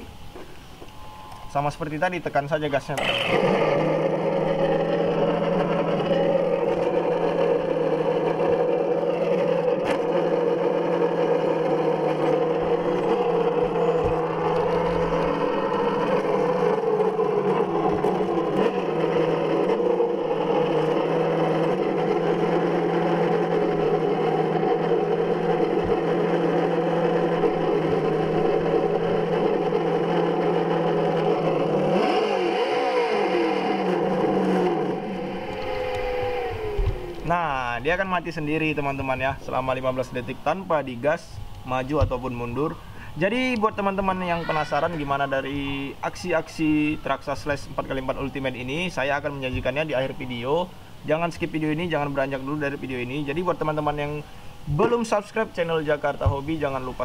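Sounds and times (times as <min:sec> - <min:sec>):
simulated engine idle from speaker: 0:02.8 - 0:31.7.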